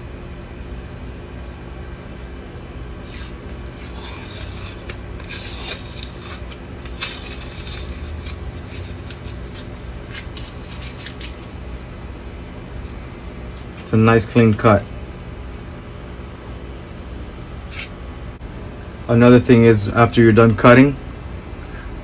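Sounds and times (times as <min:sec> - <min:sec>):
steady low hum: 0:00.0 - 0:22.0
tape peeling and crackling: 0:02.9 - 0:12.0, 0:17.7 - 0:18.0.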